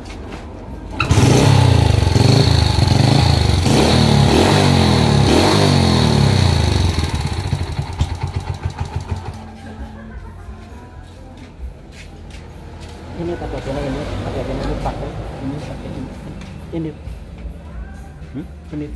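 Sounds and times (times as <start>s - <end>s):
motorcycle engine revving: 0.9s - 9.6s, 13.0s - 17.0s.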